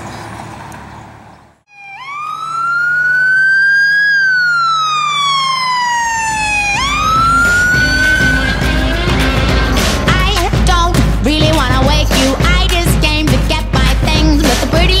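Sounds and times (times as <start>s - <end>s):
emergency siren wailing: 1.7s - 9.8s.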